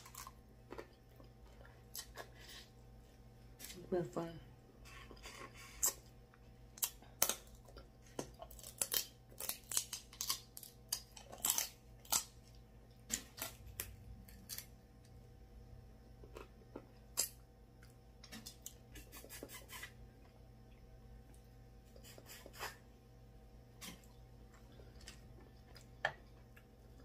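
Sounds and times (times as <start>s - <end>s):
crab shells cracking by hand: 6.7s - 14.7s.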